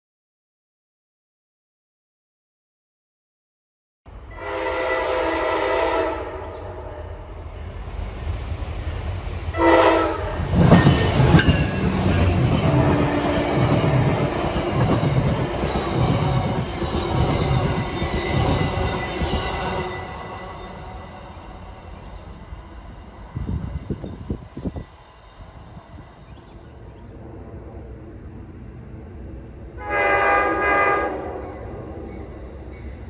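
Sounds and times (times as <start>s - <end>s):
train wheels rumbling: 4.1s - 33.0s
train horn blast: 4.2s - 7.4s, 9.5s - 11.0s, 12.6s - 14.3s, 29.7s - 31.9s
wheels clacking over rail joints: 10.4s - 20.4s.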